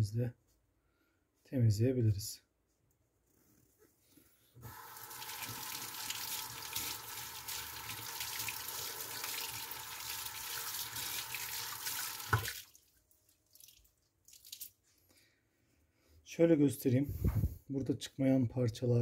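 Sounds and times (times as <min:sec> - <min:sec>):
tap water running into sink: 0:04.6 - 0:12.7.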